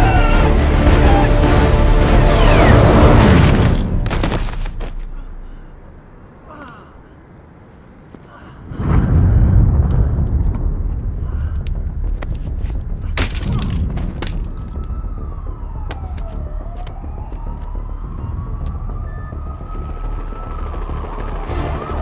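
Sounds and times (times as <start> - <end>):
deep loud rumble: 8.6 - 22.0
noisy rush: 13.9 - 22.0
police siren wailing: 14.4 - 22.0.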